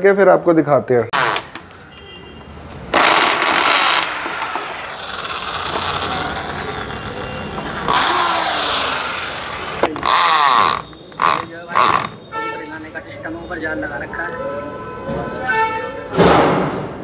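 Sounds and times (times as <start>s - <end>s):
electric drill whining: 3.0s - 12.2s.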